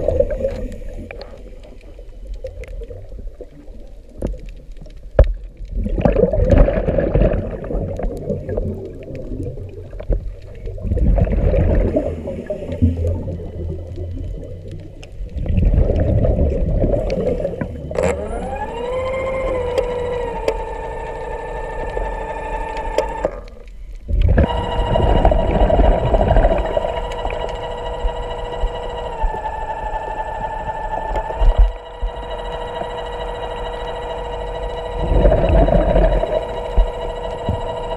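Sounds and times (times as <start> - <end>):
underwater bubbles rumbling: 0.0 - 37.9
underwater scooter motor whine: 0.0 - 37.9.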